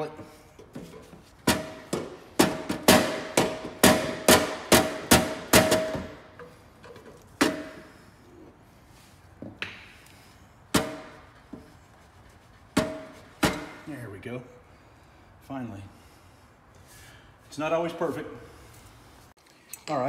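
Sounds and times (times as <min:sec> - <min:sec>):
rubber mallet beating metal muffler: 0:01.4 - 0:06.6, 0:10.7 - 0:11.6, 0:12.7 - 0:13.9.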